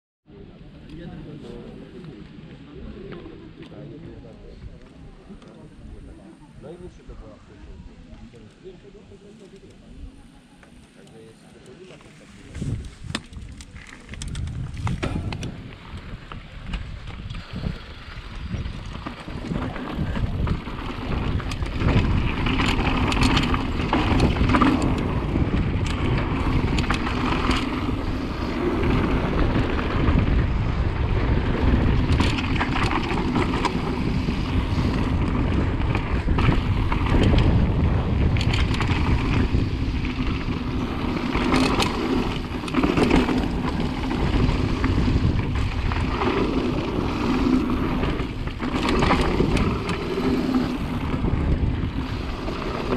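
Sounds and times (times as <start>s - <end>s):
bike knocking and rattling: 11.8s - 52.9s
wind rushing over microphone: 12.1s - 52.9s
tyres rolling over dirt and stones: 12.4s - 52.9s.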